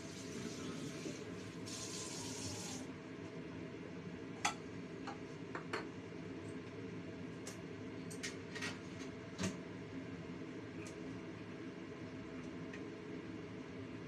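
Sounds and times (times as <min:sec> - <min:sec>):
water boiling in a wok: 0:00.0 - 0:02.9.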